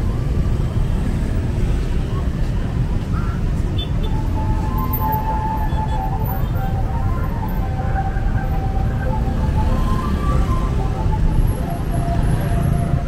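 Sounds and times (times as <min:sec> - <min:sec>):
cars and scooters driving past: 0:00.0 - 0:13.0
faint tones drifting in pitch: 0:04.2 - 0:13.0.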